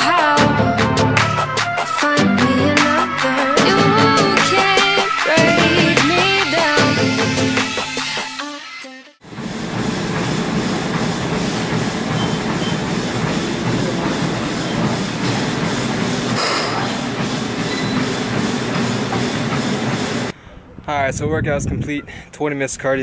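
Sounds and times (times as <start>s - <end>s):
treadmill motor and belt hum: 9.2s - 20.4s
running shoes slapping on deck: 9.8s - 20.3s.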